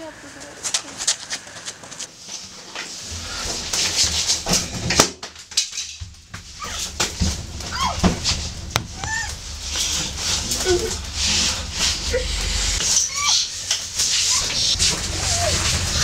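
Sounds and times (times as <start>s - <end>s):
knocks and rustling of struggle: 1.1s - 12.1s.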